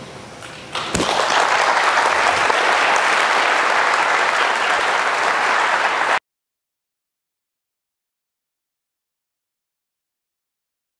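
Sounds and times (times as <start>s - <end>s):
audience applauding: 0.9s - 6.2s.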